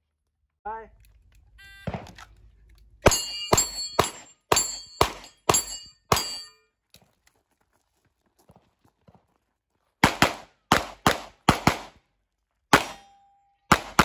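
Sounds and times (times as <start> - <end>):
pistol shots: 1.8 - 2.3, 3.0 - 6.5, 10.0 - 12.0, 12.7 - 13.1, 13.7 - 14.0
bullets clanging on steel targets: 3.0 - 6.7.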